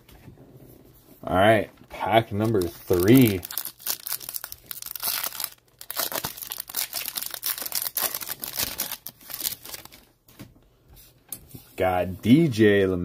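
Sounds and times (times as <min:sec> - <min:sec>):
foil crackles and rustles: 0:02.1 - 0:10.1
foil wrapper tearing and crinkling: 0:02.3 - 0:10.1.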